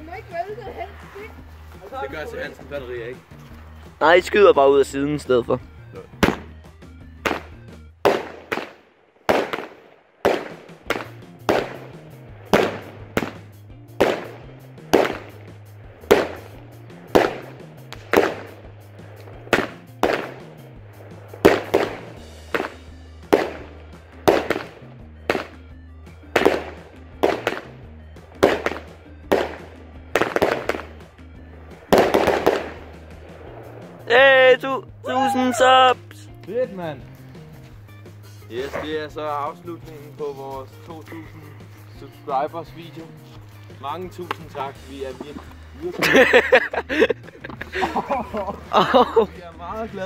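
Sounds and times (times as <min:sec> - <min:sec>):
background music with beat: 0:00.0 - 0:08.7, 0:09.3 - 0:50.0
firework shots and bursts: 0:06.1 - 0:34.1.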